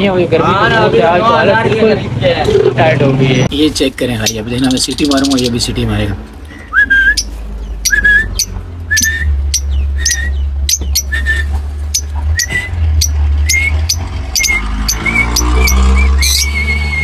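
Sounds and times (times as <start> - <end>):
lovebirds chirping: 2.5 - 17.0.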